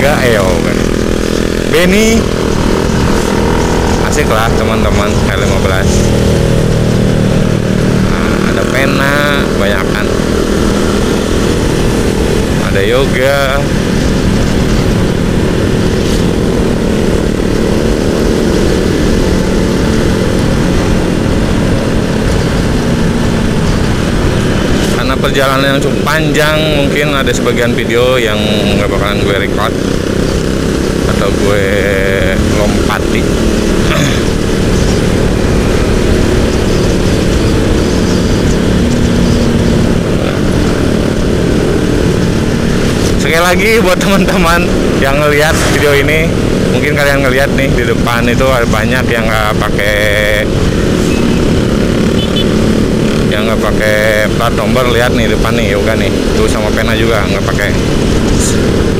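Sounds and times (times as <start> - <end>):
motorcycle engine running: 0.0 - 58.9
wind rush on microphone: 29.6 - 43.2.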